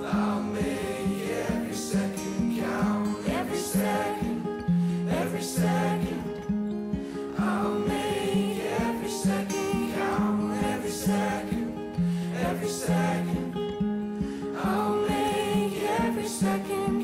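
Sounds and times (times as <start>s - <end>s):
song with voices and steady beat: 0.0s - 17.0s.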